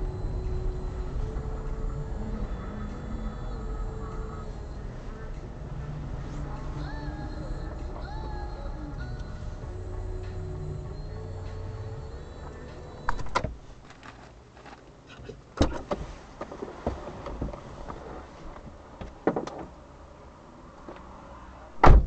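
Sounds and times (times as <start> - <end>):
low hum: 0.0 - 13.4
clicks and knocks inside car: 13.1 - 19.8.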